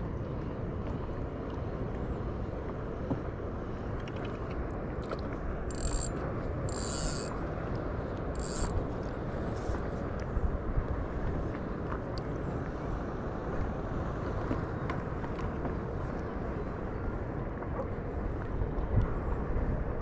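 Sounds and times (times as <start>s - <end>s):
low rumble of wind and water: 0.0s - 20.0s
fishing reel buzzing: 5.7s - 7.4s, 8.4s - 8.8s.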